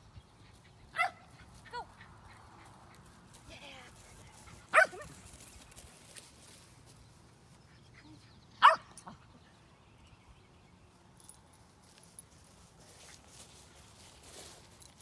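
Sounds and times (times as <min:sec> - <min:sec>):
dog barking: 0:01.0 - 0:01.2, 0:04.7 - 0:05.1, 0:08.6 - 0:08.9.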